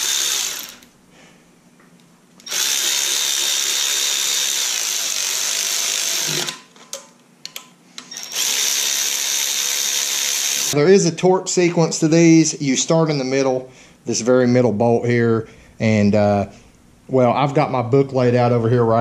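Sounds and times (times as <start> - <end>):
electric ratchet motor whining: 0.0 - 0.9, 2.4 - 6.6, 8.1 - 10.8.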